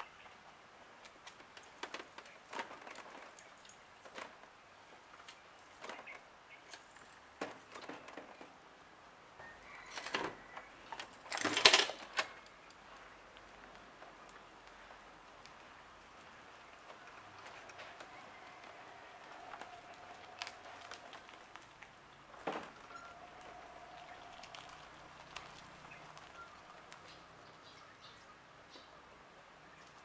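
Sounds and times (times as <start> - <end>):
metal joints clicking and clunking: 9.9 - 13.1.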